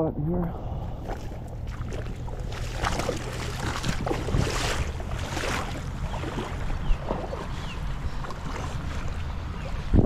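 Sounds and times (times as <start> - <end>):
wind rumbling on microphone: 0.3 - 10.0
shallow water sloshing: 0.8 - 10.0.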